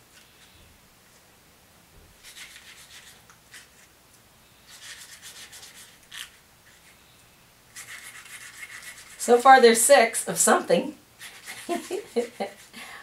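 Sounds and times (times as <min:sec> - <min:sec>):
finger rubbing on paper: 0:07.8 - 0:09.2, 0:11.2 - 0:12.7.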